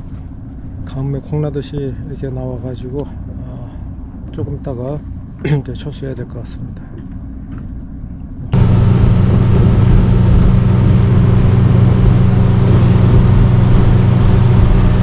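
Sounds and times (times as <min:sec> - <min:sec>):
wind: 0:00.0 - 0:15.0
outboard motor running: 0:08.6 - 0:15.0
rushing water: 0:08.6 - 0:15.0.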